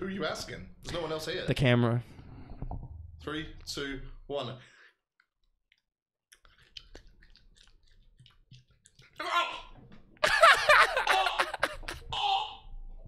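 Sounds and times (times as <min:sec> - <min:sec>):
faint chewing: 0:05.2 - 0:09.3
man gagging and retching: 0:09.0 - 0:12.7
man laughing loudly: 0:10.2 - 0:12.4.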